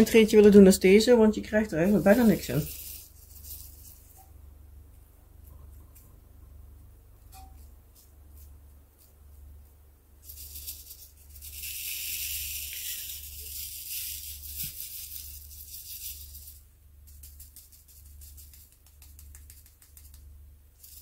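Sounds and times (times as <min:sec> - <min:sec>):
small beads rattling in plastic tray: 0:01.7 - 0:04.1, 0:10.2 - 0:18.8, 0:20.8 - 0:21.0.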